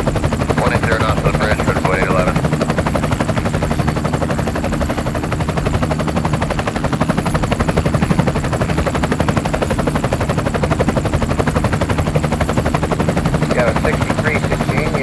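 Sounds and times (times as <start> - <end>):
helicopter rotors chopping: 0.0 - 15.0.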